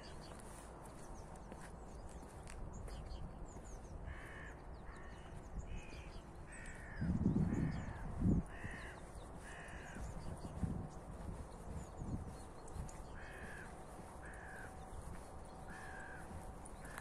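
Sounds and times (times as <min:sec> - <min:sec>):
crow cawing: 0:04.0 - 0:10.1, 0:13.2 - 0:14.8, 0:15.6 - 0:17.0.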